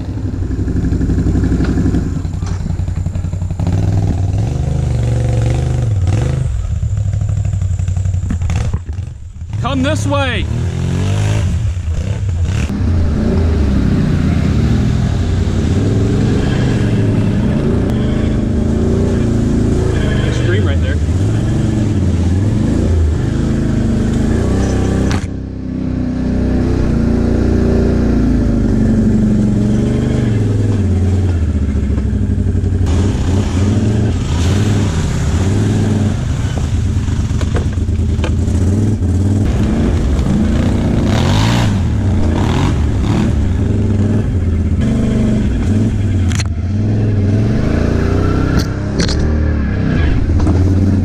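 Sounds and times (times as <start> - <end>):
atv clattering over ruts: 0.0 - 13.6, 26.8 - 46.7
atv engine revving: 0.0 - 51.0.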